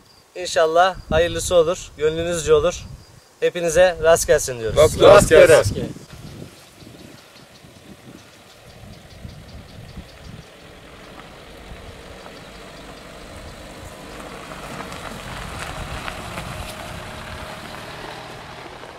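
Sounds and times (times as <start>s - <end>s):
car engine running low: 6.0s - 18.9s
tyres crackling on gravel: 9.8s - 18.9s.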